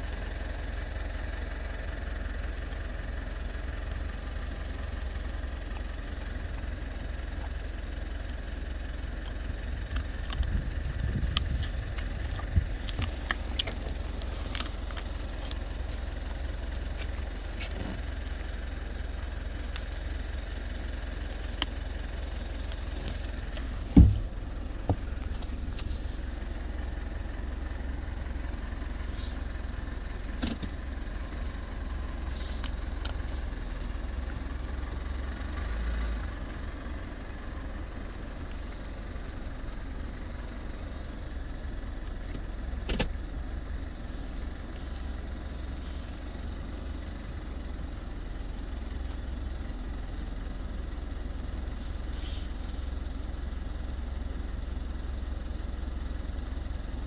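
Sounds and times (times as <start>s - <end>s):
horse chewing apple: 9.2s - 20.3s
wind rumble on microphone: 9.8s - 13.6s.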